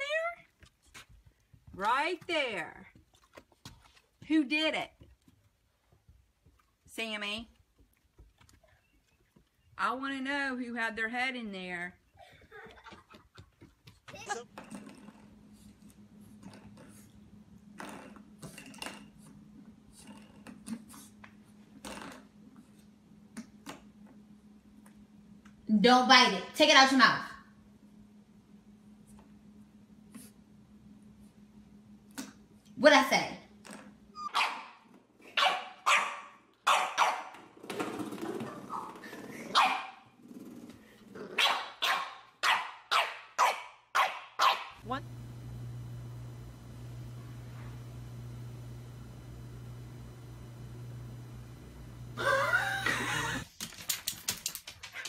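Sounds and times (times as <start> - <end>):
steady low hum: 14.2 - 34.2, 44.8 - 53.5
dog yapping: 34.2 - 34.8, 35.4 - 37.4, 38.4 - 40.0, 41.4 - 44.8.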